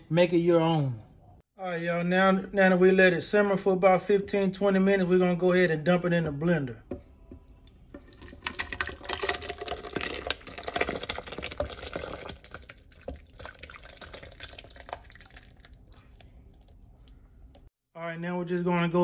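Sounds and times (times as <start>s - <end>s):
thick sauce pouring and glopping: 7.5s - 17.7s.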